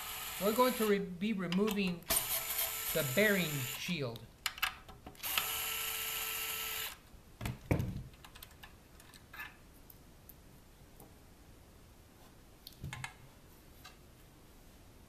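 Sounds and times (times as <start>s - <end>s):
cordless driver spinning: 0.0s - 1.0s, 2.1s - 4.0s, 5.2s - 7.0s.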